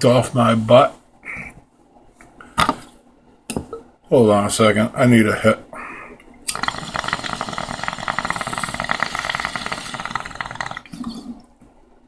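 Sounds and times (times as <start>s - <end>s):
water bubbling in glass pipe: 6.5s - 11.5s.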